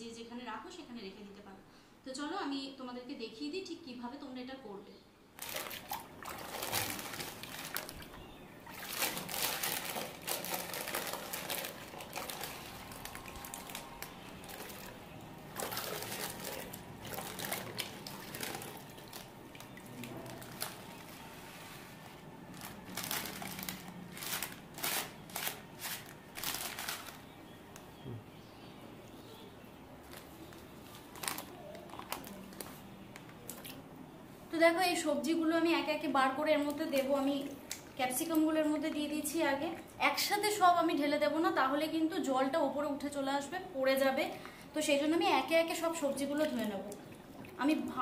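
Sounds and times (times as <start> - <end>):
water splashes and drips: 5.4 - 21.2, 45.8 - 48.0
hands sloshing packet in water: 5.4 - 27.4, 30.0 - 33.8
plastic wrapping crinkling: 5.4 - 27.4, 30.0 - 33.8.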